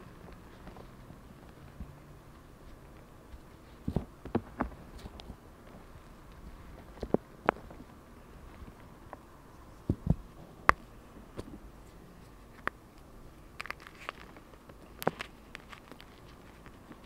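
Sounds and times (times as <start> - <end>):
chalk blocks cracking and crunching: 13.5 - 17.0.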